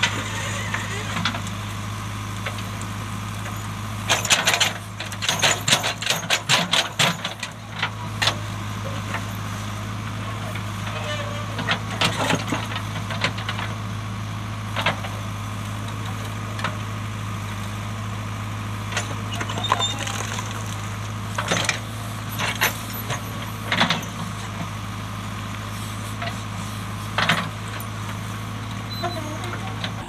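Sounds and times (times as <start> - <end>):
diesel engine running: 0.0 - 30.0
stones clanking against steel bucket: 19.4 - 21.7.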